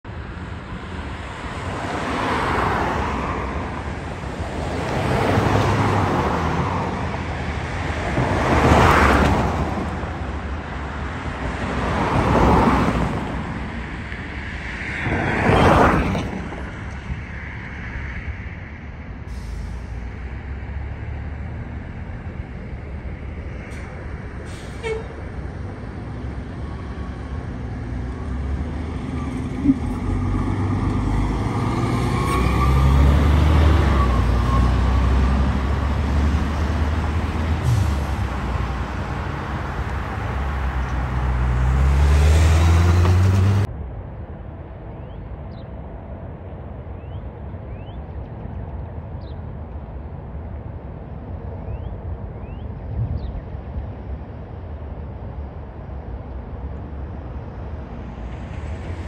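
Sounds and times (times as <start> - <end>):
vehicles passing: 0.0 - 59.0
engines idling: 35.5 - 43.7.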